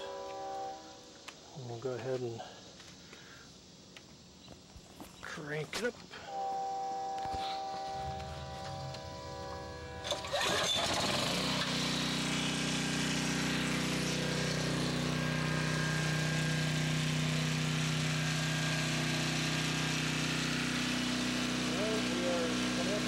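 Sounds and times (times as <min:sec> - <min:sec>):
generator engine starting and running: 0:06.3 - 0:23.0.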